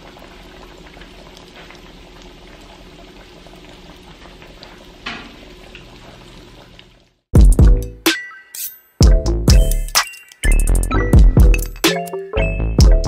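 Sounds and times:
fish frying in hot oil: 0:00.0 - 0:07.3.

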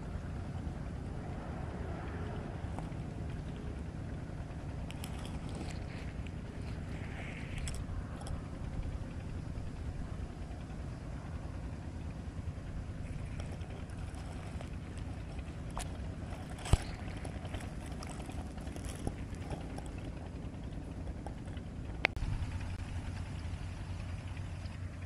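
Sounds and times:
low outdoor rumble: 0:00.0 - 0:25.0.

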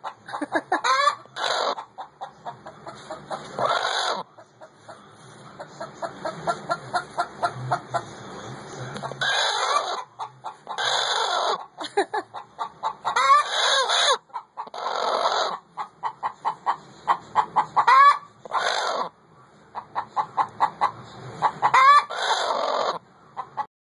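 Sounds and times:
hen clucking: 0:00.0 - 0:23.7
hen squawking: 0:00.1 - 0:02.0, 0:03.1 - 0:04.4, 0:09.1 - 0:11.7, 0:12.8 - 0:19.2, 0:21.5 - 0:23.0.

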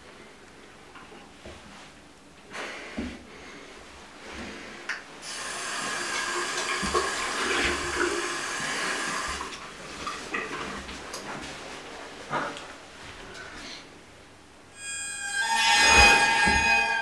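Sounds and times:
water running into sink: 0:05.3 - 0:10.5.

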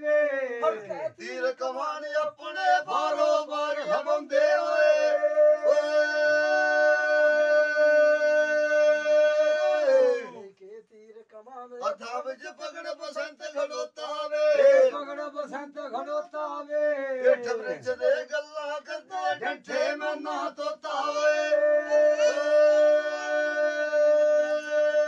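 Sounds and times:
men singing unaccompanied folk song: 0:00.0 - 0:25.0.

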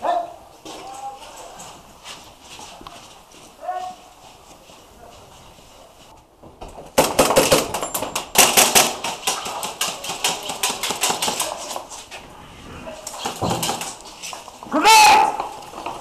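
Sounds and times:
airsoft guns firing: 0:07.0 - 0:11.6.

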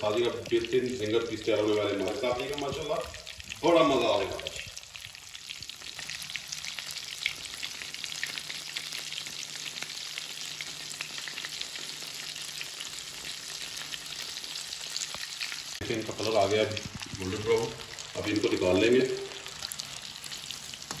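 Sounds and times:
chicken deep-frying in oil: 0:00.0 - 0:21.0.

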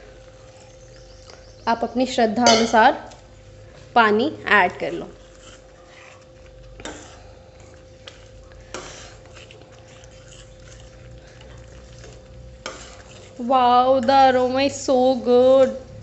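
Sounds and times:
faint steady hum: 0:00.0 - 0:16.0
ladle stirring in a steel pan: 0:04.8 - 0:16.0
ladle scraping pan: 0:08.7 - 0:10.9, 0:11.8 - 0:14.8.

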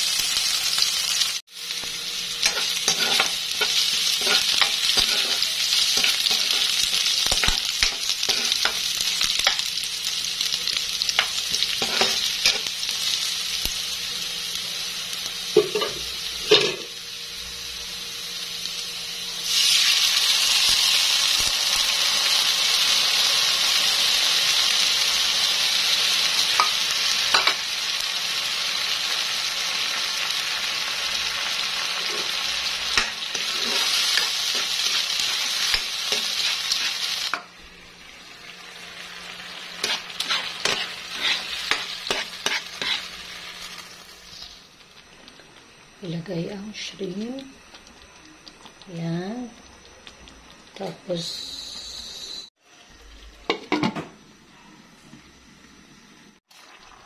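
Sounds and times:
loud sizzle and bubbling: 0:00.0 - 0:57.0
onion frying in wok: 0:00.0 - 0:57.0
spatula scraping wok: 0:01.8 - 0:09.6, 0:11.1 - 0:12.8, 0:31.8 - 0:37.5, 0:39.4 - 0:44.6.

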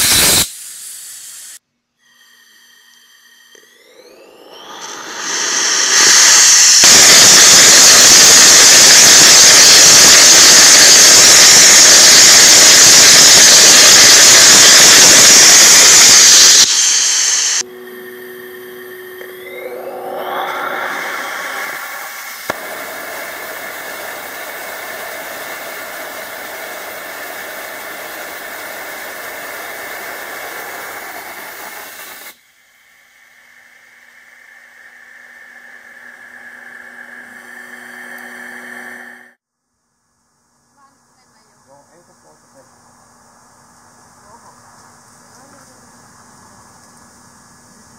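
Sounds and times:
rocket engine roaring: 0:03.5 - 0:39.4
rushing noise with rising tone: 0:03.5 - 0:39.4.

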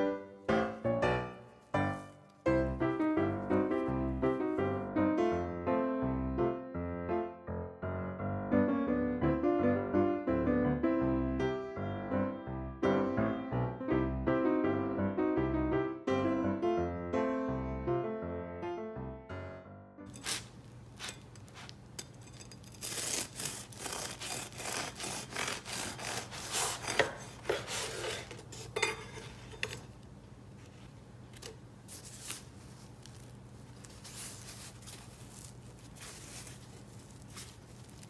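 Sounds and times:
bread being handled: 0:20.1 - 0:38.0
knife sawing through bread: 0:22.7 - 0:28.7.

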